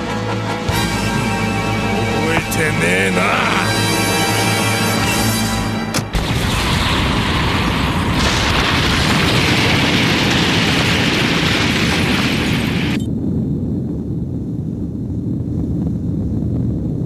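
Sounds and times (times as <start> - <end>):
explosion blast and rumble: 4.8 - 17.0.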